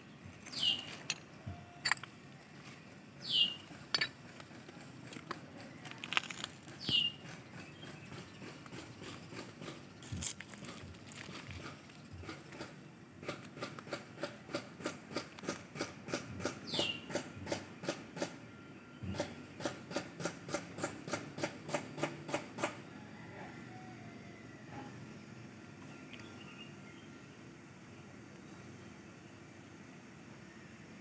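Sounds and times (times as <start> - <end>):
high falling bird call: 0.5 - 1.9, 3.2 - 3.7, 6.8 - 8.2
footsteps on rubble: 3.9 - 7.1, 10.0 - 12.3.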